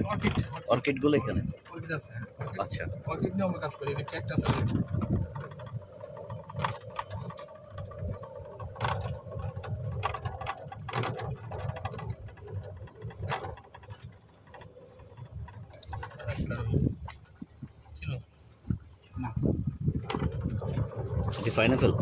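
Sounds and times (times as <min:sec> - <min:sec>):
scattered knocks: 0:01.8 - 0:17.8.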